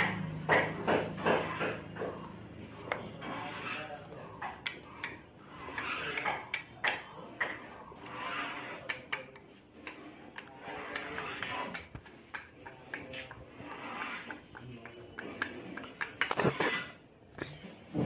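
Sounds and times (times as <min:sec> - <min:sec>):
wooden boards clicking and tapping: 0:00.0 - 0:02.2, 0:04.4 - 0:07.6, 0:08.8 - 0:13.5, 0:14.2 - 0:16.5.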